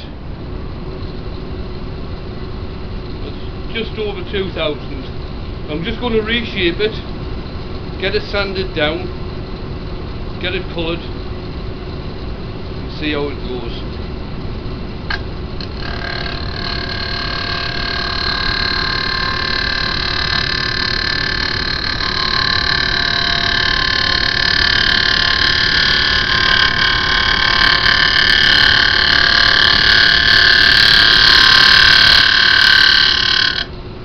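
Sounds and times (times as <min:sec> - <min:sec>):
lathe tool scraping wood: 0:15.1 - 0:33.7.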